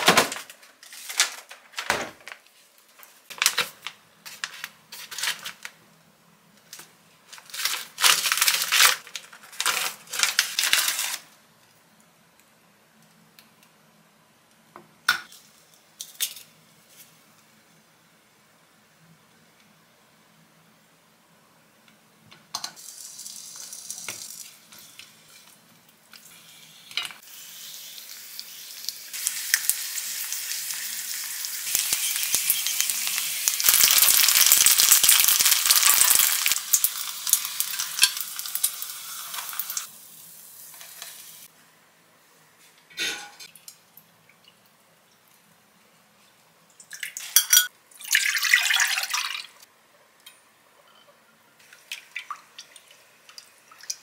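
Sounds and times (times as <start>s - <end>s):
dumplings sizzling in oil: 22.7s - 41.5s.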